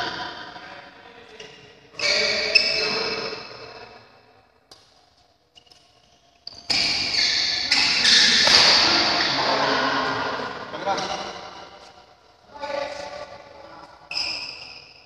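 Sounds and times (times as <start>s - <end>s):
racket striking shuttlecock: 8.3s - 9.0s.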